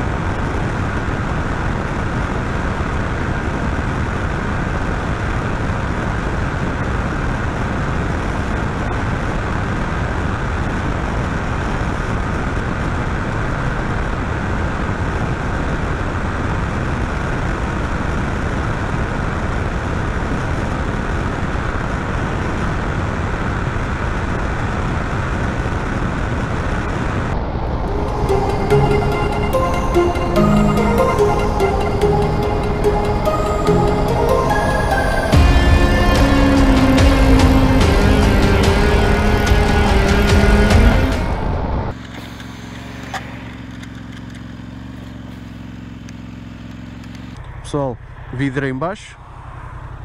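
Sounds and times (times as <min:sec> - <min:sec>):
motorcycle engine at top speed: 0:00.0 - 0:50.0
wind and road roar: 0:00.0 - 0:50.0.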